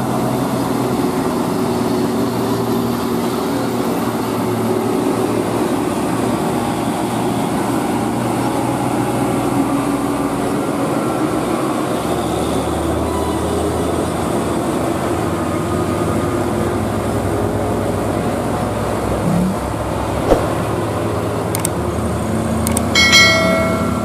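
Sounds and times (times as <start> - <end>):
passing traffic: 0.0 - 24.0
clicks: 21.5 - 21.8.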